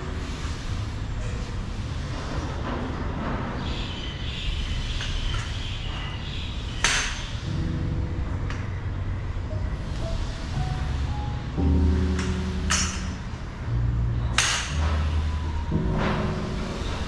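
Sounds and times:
metal poles clacking: 6.8s - 7.4s, 12.0s - 13.3s, 14.3s - 17.0s
steady low rumble: 7.4s - 17.0s.

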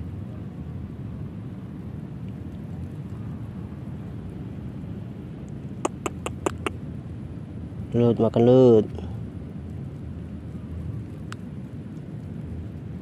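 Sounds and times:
sharp ticks: 5.8s - 6.8s
wind buffeting microphone: 9.2s - 13.0s.

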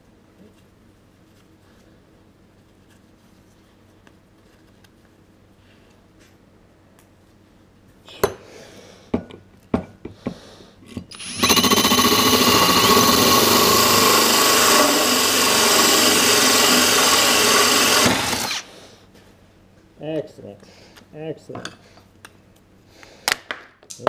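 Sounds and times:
hole saw grinding into stone tile: 11.1s - 18.7s.

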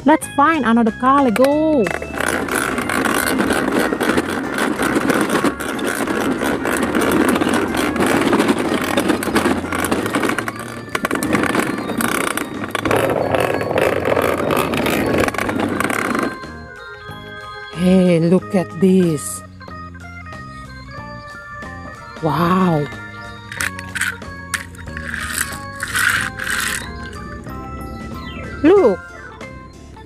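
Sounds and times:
plastic toy truck wheels rattling: 1.3s - 16.7s, 22.4s - 27.4s.

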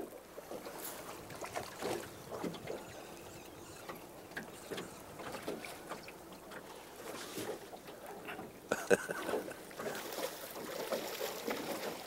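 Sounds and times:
water lapping against boat: 0.0s - 12.0s.

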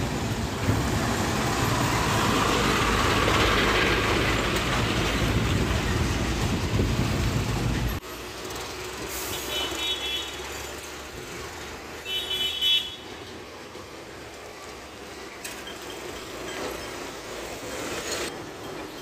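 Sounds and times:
truck driving away: 0.0s - 9.6s
road traffic: 0.0s - 19.0s
vehicle horn tooting: 9.3s - 10.5s, 12.0s - 13.2s.

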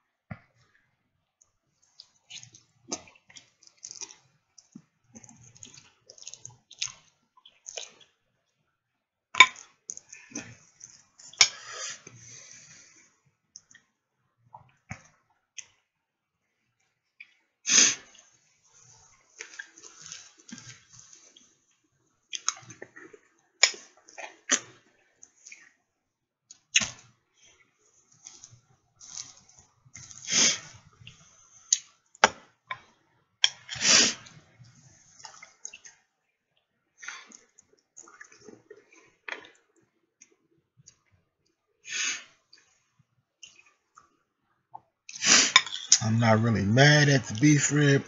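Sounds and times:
person chewing wetly: 2.0s - 8.1s, 22.3s - 25.7s, 28.2s - 31.9s, 37.0s - 39.6s.

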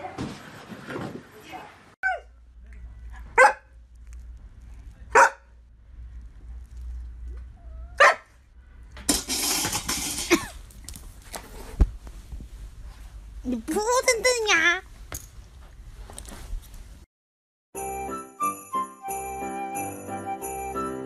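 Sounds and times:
rustling noise: 3.2s - 5.1s, 5.8s - 7.6s, 9.1s - 17.1s
large dog barking: 3.4s - 3.7s, 5.1s - 5.5s, 8.0s - 8.3s.

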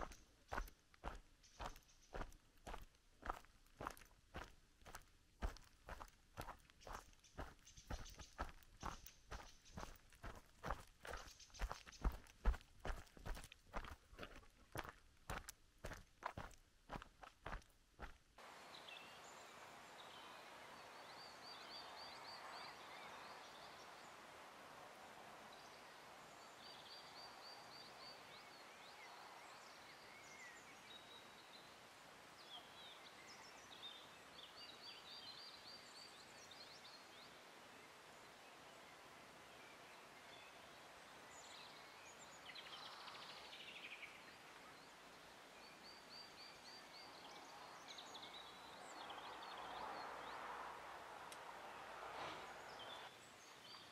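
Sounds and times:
soft steady hiss: 0.0s - 53.9s
birds trilling and chirping: 6.8s - 12.6s.

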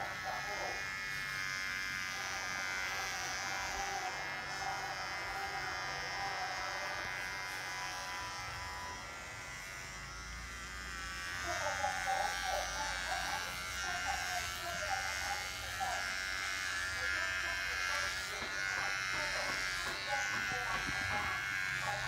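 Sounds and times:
electric hair clipper buzzing: 0.0s - 22.0s.

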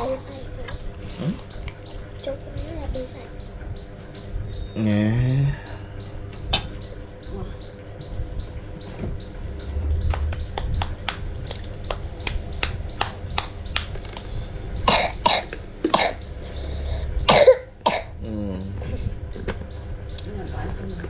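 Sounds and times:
child clapping hands: 10.1s - 13.9s
loud coughs: 14.9s - 16.2s, 17.3s - 18.2s.

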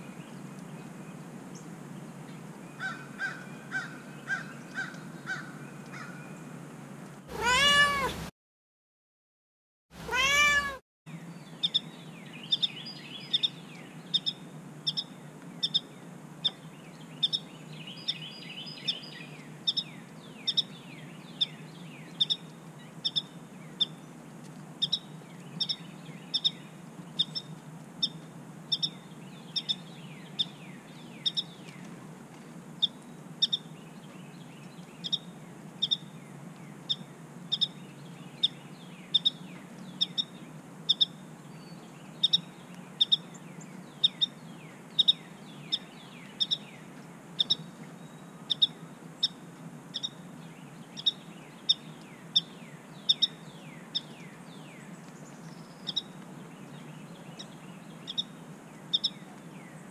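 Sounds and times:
cat meowing: 7.3s - 8.3s, 10.0s - 10.8s.

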